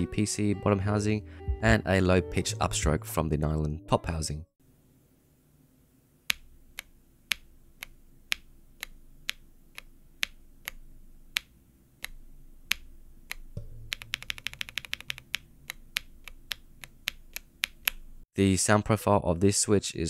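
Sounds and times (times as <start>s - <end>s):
keyboard key clicking: 6.3s - 18.1s
fast typing: 13.9s - 17.8s.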